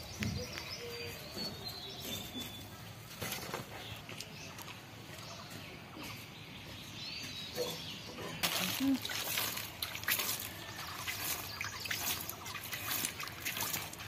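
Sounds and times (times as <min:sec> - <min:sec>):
birds chirping: 0:00.0 - 0:14.0
plastic sack rustling: 0:08.4 - 0:14.0.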